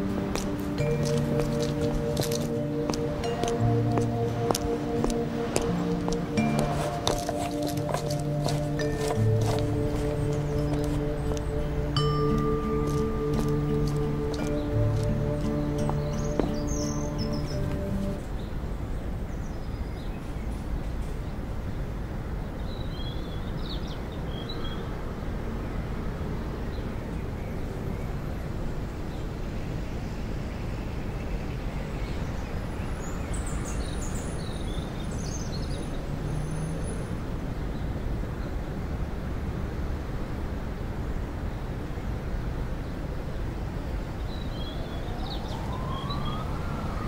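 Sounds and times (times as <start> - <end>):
bird chirps: 0.0 - 18.3.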